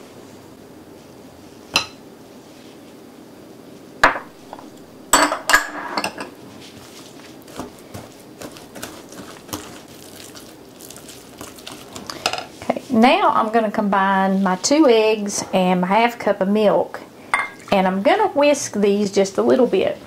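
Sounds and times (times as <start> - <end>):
whisk clinking against glass bowl: 17.3 - 17.7.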